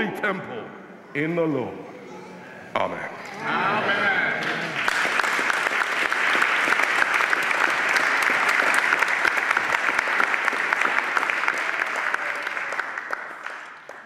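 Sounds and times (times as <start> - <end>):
crowd applauding: 4.4 - 14.0.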